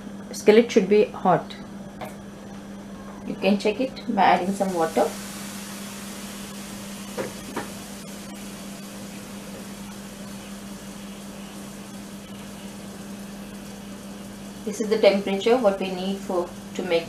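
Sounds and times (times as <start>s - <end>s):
water sizzling in hot pan: 4.4s - 17.0s.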